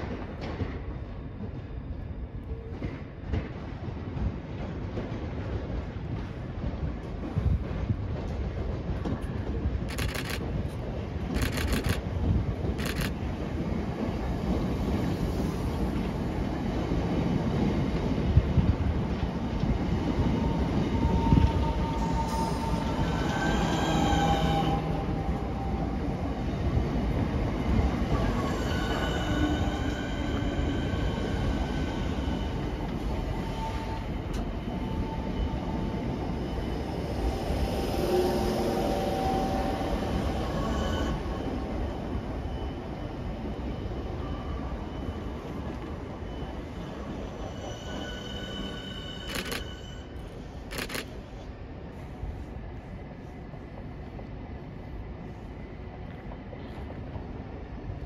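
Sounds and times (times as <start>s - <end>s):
train wheels rumbling on rails: 0.0s - 58.0s
sharp clicks: 9.9s - 10.4s, 11.3s - 12.0s
high-pitched wheel squeals: 20.4s - 25.2s, 38.8s - 50.5s.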